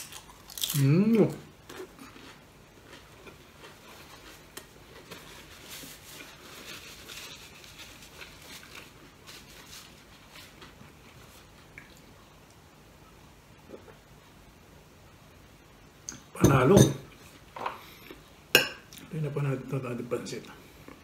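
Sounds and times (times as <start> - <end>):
person chewing: 0.0 - 5.3.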